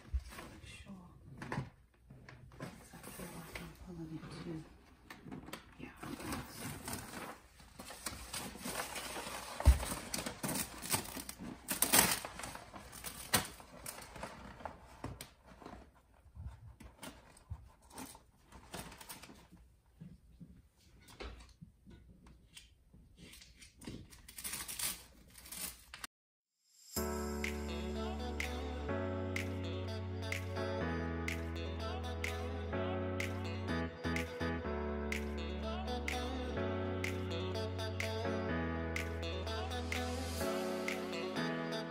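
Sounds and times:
wallpaper rustling and crinkling: 0:00.0 - 0:21.5, 0:23.1 - 0:26.1.

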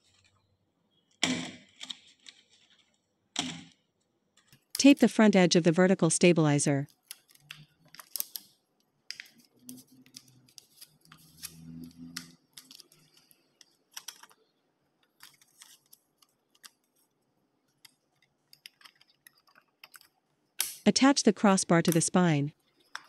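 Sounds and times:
thin metal sheet crinkling: 0:09.4 - 0:14.4.

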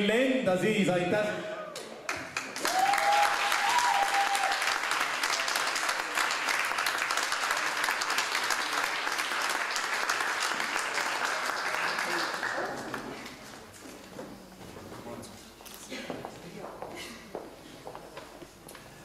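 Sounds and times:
audience applauding: 0:02.1 - 0:13.7
person whooping: 0:02.6 - 0:04.6.

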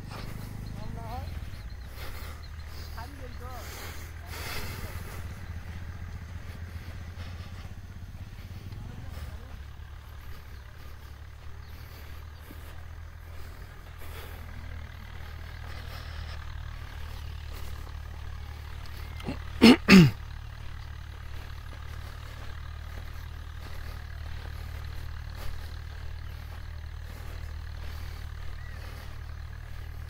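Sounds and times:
small engine idling: 0:00.0 - 0:30.0.

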